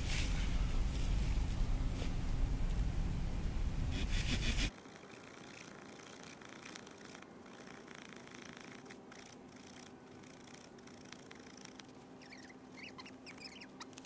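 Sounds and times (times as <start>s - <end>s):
wind rumble on microphone: 0.0s - 4.7s
saw blade rasping on branch: 3.9s - 11.8s.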